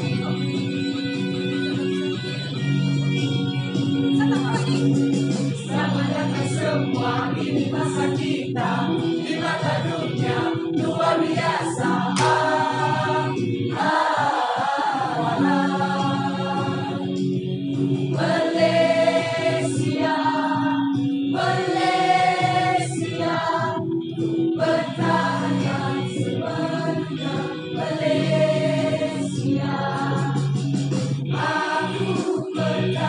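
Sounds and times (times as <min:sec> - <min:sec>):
choir singing: 0:05.7 - 0:17.3, 0:18.0 - 0:30.5, 0:31.3 - 0:33.0.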